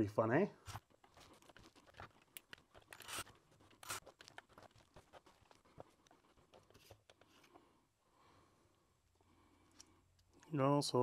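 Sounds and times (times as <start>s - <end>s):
small clicks of lens parts: 0.7s - 4.7s, 9.6s - 10.6s.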